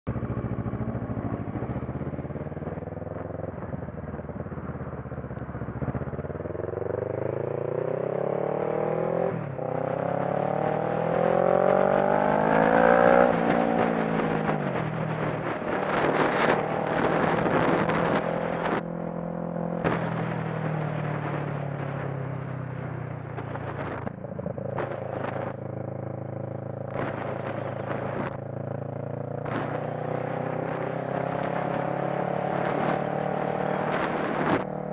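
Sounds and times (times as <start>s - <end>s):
motorcycle engine accelerating: 0.1s - 34.9s
wind buffeting microphone: 8.8s - 34.9s.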